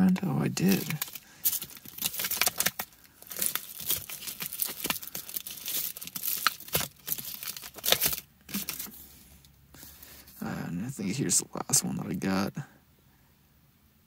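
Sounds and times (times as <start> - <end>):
plastic sleeves crinkling: 0.0 - 9.0.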